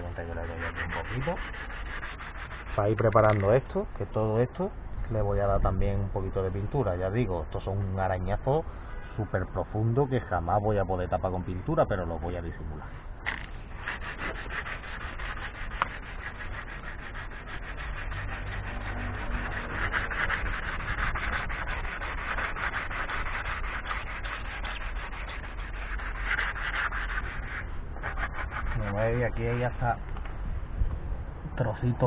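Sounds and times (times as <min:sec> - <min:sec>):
sandpaper rubbing on paintwork: 0:00.0 - 0:03.9, 0:13.3 - 0:29.9.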